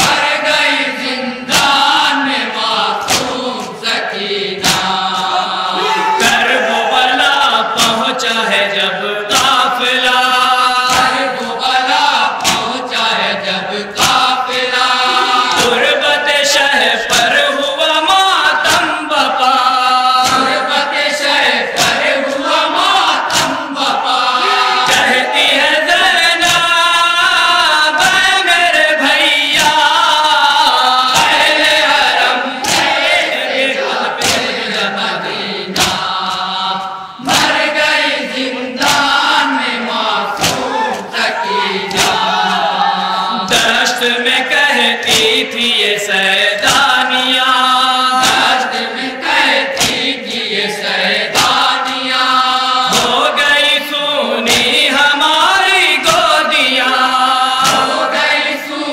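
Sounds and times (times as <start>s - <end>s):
men chanting through microphone: 0.0s - 58.9s
hands slapping on chests: 1.5s - 1.9s, 3.0s - 3.7s, 4.6s - 5.3s, 7.8s - 8.1s, 9.3s - 9.7s, 10.8s - 11.2s, 12.4s - 12.9s, 14.0s - 14.4s, 20.2s - 20.6s, 21.7s - 23.9s, 26.4s - 26.7s, 31.1s - 34.6s, 35.7s - 37.7s, 38.8s - 39.4s, 40.3s - 41.1s, 41.9s - 42.5s, 45.0s - 45.4s, 46.6s - 47.0s, 48.2s - 48.7s, 49.7s - 50.5s, 51.3s - 52.0s, 52.9s - 53.3s, 54.5s - 54.8s, 57.6s - 58.0s.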